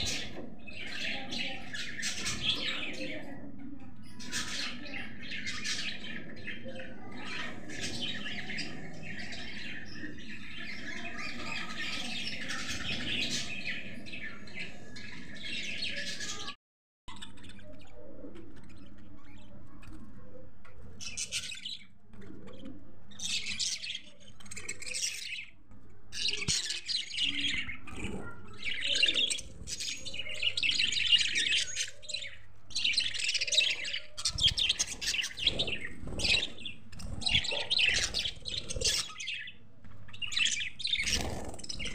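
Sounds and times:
budgerigars chirping: 0.0s - 3.3s, 26.2s - 41.9s.

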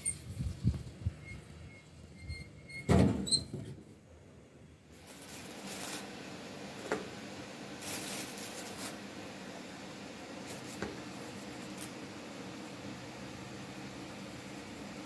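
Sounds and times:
flour rustling and scraping: 5.0s - 6.2s, 7.8s - 9.1s, 10.4s - 12.0s.

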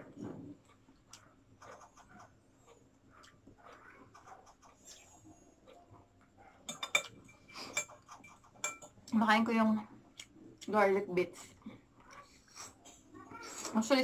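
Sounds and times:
soft chewing: 0.1s - 9.2s, 9.9s - 13.8s
fork clinking on plate: 6.7s - 8.9s.

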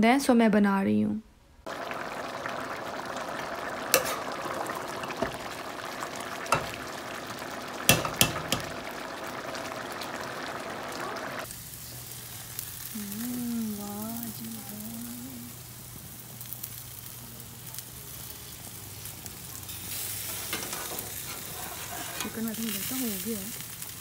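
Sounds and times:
pot bubbling at a boil: 1.6s - 14.4s
meat sizzling on grill: 1.7s - 24.0s.

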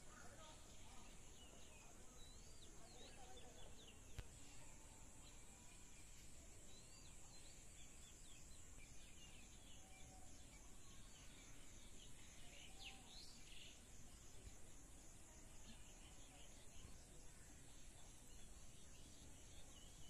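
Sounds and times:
small birds chirping: 0.0s - 20.0s
faint click: 4.1s - 4.4s.

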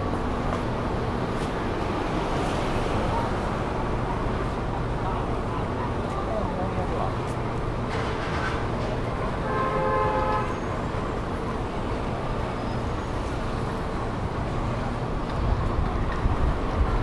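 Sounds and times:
street traffic rumble: 0.0s - 17.0s
vehicle horn: 9.1s - 10.7s.

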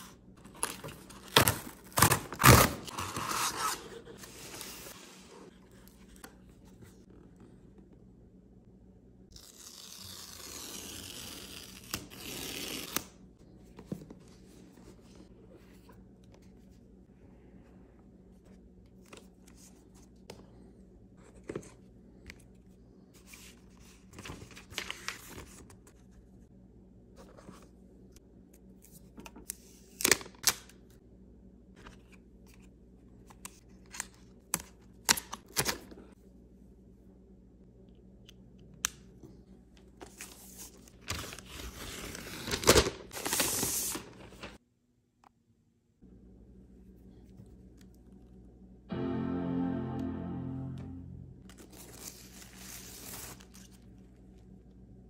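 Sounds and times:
paper tear strip tearing: 9.4s - 13.1s
paper rustling: 40.0s - 44.6s.

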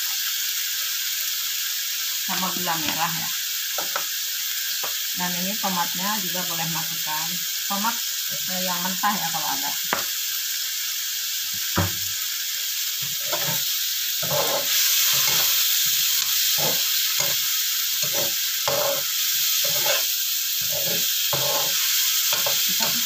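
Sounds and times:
food sizzling in a wok: 0.0s - 23.0s
metal spatula scraping a pan: 13.0s - 23.0s.

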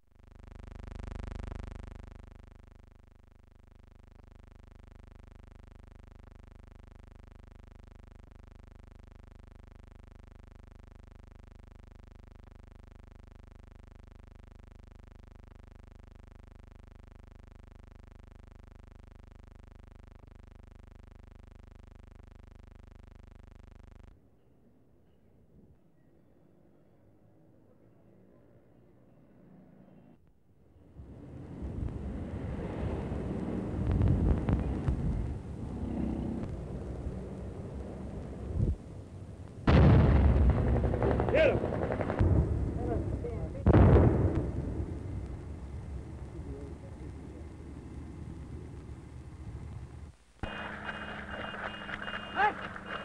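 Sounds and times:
faint mechanical drone: 0.0s - 53.0s
loud rushing swell: 30.9s - 39.4s.

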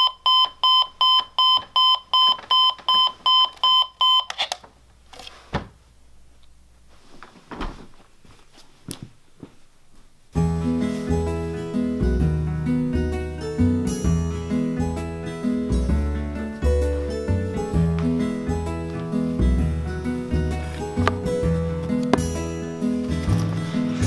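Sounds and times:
alarm clock beeping: 0.0s - 4.3s
faint rustling: 6.8s - 11.2s
acoustic guitar music: 10.4s - 24.0s.

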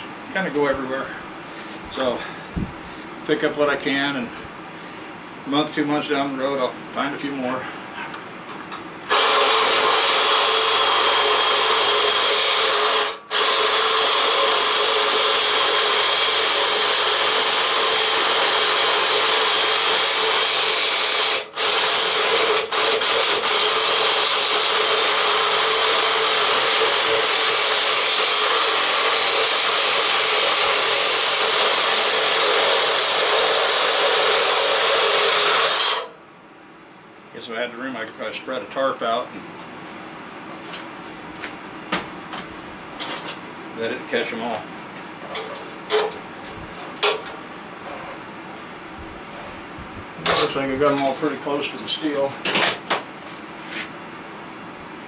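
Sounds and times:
reciprocating saw cutting metal: 9.1s - 36.1s.

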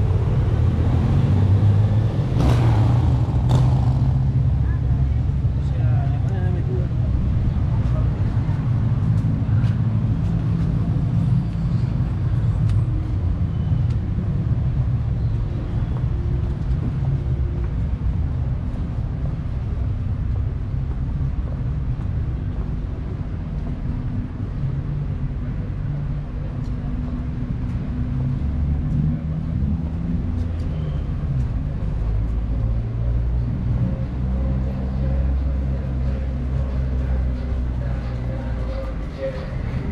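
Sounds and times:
faint street noise: 0.0s - 39.9s
vehicle engine running: 0.0s - 39.9s.

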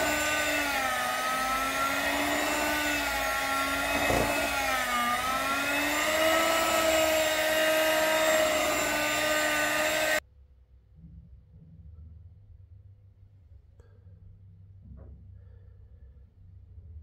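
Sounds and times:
electric hand mixer whine: 0.0s - 10.2s.

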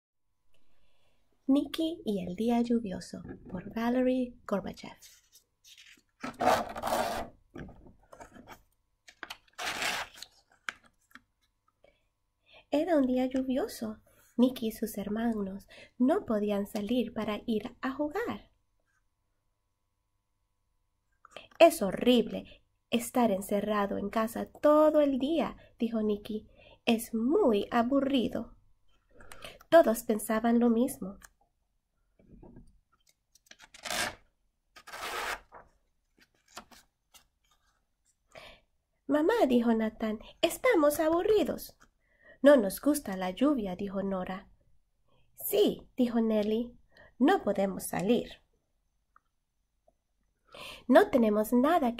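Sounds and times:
page turning rustle: 5.0s - 11.2s, 34.8s - 37.9s.

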